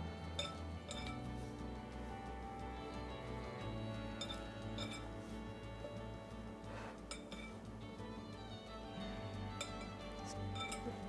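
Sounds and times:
background music with held notes: 0.0s - 11.0s
kitchenware clinking: 0.4s - 1.2s, 4.2s - 5.0s, 7.1s - 7.6s, 10.6s - 11.0s.

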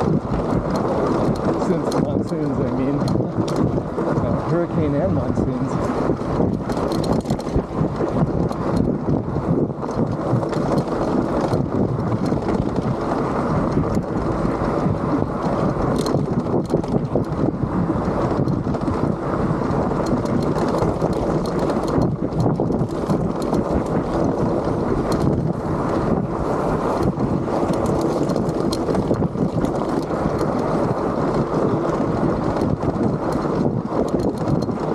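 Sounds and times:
small clicks and rattles: 0.0s - 34.9s
tyres on loose sand and gravel: 0.0s - 34.9s
wind buffeting microphone: 0.0s - 34.9s.

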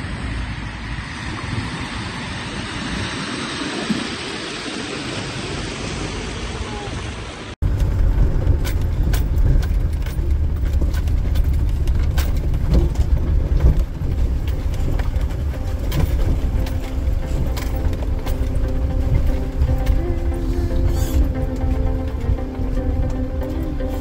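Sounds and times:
vehicle rumble inside cabin: 0.0s - 24.0s
stones knocking under tyres: 7.6s - 23.8s.

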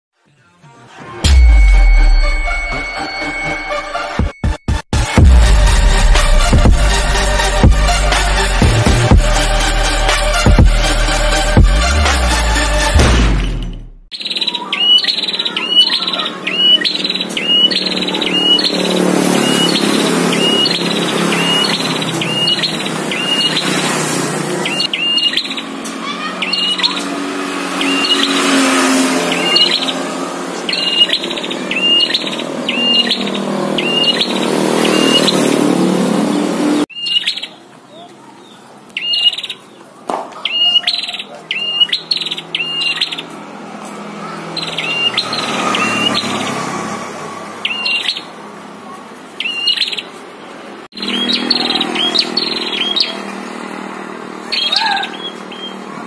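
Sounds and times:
bird high chirps: 14.1s - 35.6s, 36.9s - 43.4s, 44.3s - 46.6s, 47.6s - 48.4s, 49.4s - 53.4s, 54.4s - 56.0s.

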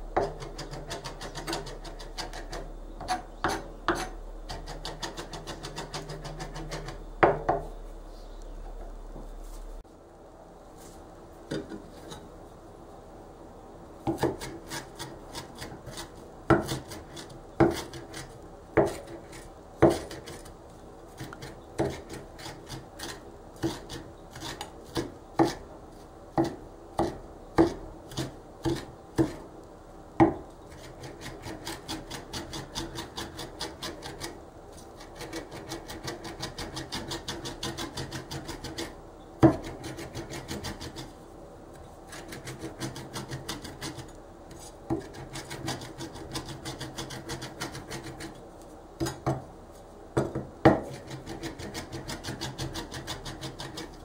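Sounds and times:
rocking knife chopping herbs: 0.2s - 7.6s, 14.1s - 20.5s, 21.2s - 25.6s, 35.0s - 41.1s, 42.1s - 44.1s, 44.9s - 48.4s, 50.2s - 54.0s.

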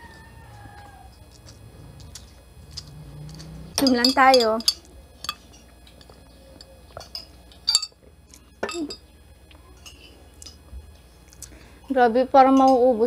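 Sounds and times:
glass and metal straw clinking: 3.8s - 5.5s, 7.0s - 8.0s.

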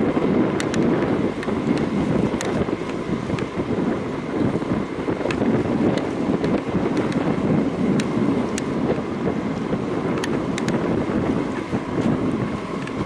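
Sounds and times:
wind buffeting microphone: 0.0s - 13.0s
faint sharp ticks: 0.6s - 3.5s, 10.2s - 10.8s.

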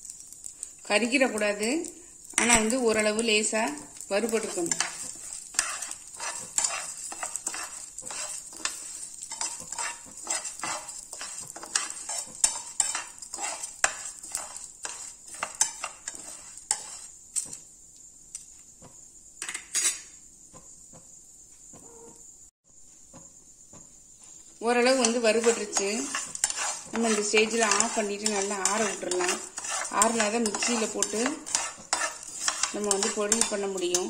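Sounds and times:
rice sizzling in oil: 0.0s - 21.4s, 22.7s - 34.0s
metal spatula scraping pan: 2.4s - 17.6s, 19.4s - 20.1s, 24.6s - 34.0s.

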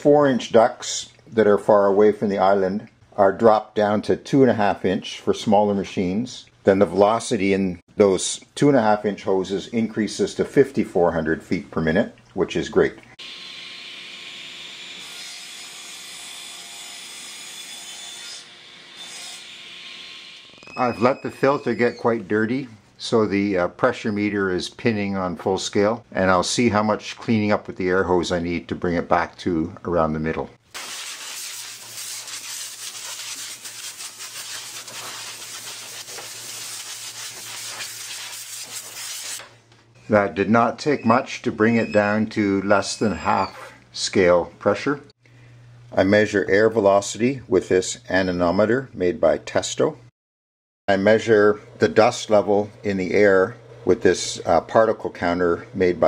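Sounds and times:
compressed air blow gun hissing: 30.8s - 39.4s.

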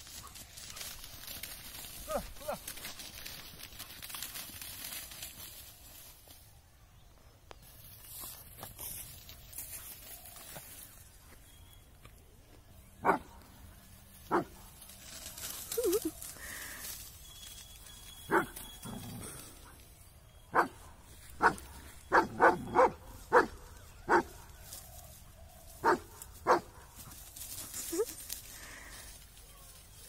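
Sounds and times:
dog barking: 13.0s - 13.4s, 14.3s - 14.5s, 18.3s - 18.6s, 20.5s - 20.8s, 21.4s - 24.4s, 25.8s - 26.8s.

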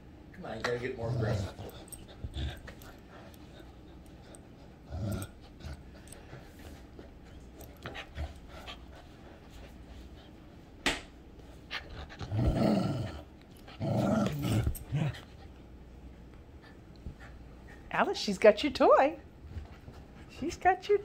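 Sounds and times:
dogs play growling: 0.4s - 10.6s, 11.4s - 17.9s
dogs panting: 0.6s - 10.8s.

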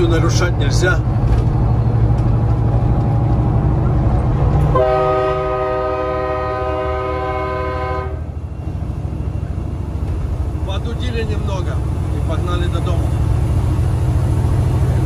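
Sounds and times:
diesel engine droning: 0.0s - 15.0s
multi-note air horn chord: 4.7s - 8.2s.

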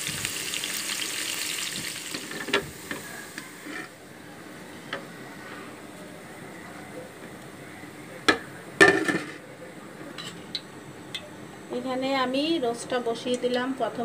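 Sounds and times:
onions sizzling in oil: 0.0s - 4.0s.

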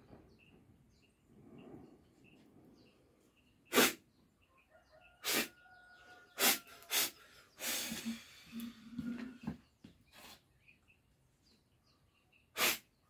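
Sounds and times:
person spraying liquid from mouth: 3.7s - 4.0s, 12.6s - 12.8s.

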